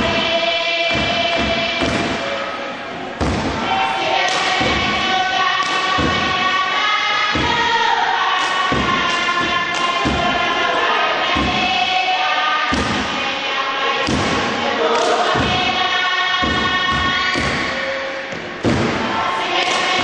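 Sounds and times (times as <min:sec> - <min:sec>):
group chanting in unison: 0:00.0 - 0:20.0
steady thumping beat: 0:00.9 - 0:02.4, 0:03.2 - 0:03.7, 0:04.4 - 0:06.6, 0:07.3 - 0:07.8, 0:08.4 - 0:10.7, 0:11.3 - 0:11.8, 0:12.7 - 0:13.2, 0:14.0 - 0:14.6, 0:15.3 - 0:15.8, 0:16.4 - 0:19.1.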